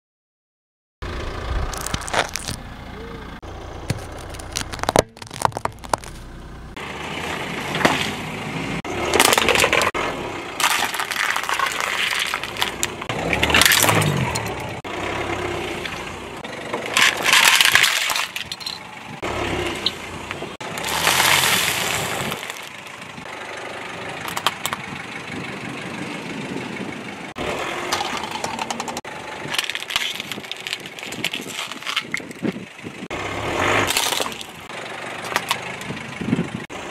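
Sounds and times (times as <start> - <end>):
tyre crushing hard candy: 1.7 - 2.6, 3.9 - 6.3, 10.6 - 13.0, 29.5 - 32.5, 33.9 - 34.5.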